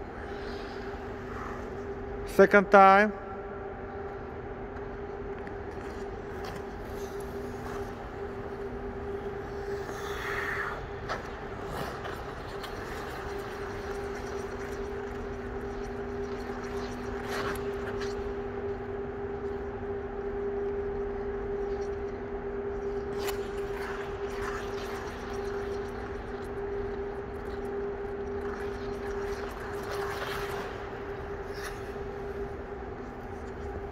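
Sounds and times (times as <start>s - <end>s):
two-pitch machinery hum: 0.0s - 33.9s
skate blades scraping ice: 5.7s - 8.8s, 9.4s - 18.4s, 28.4s - 33.9s.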